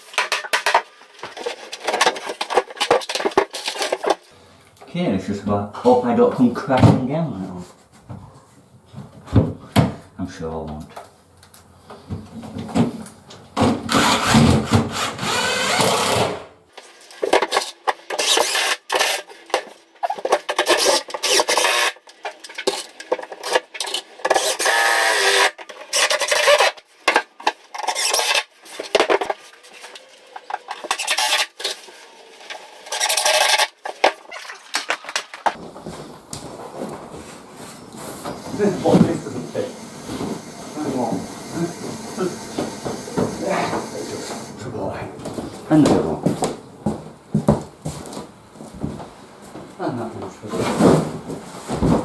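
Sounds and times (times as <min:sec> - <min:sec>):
cordless drill driving screws: 0:13.9 - 0:16.4, 0:24.3 - 0:26.1.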